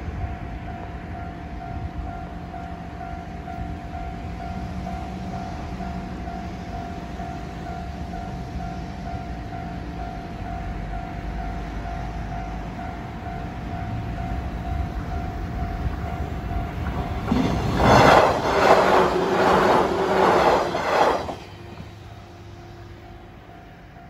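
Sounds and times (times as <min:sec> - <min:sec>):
train rumble: 0:00.0 - 0:24.0
train wheels clattering: 0:16.6 - 0:22.0.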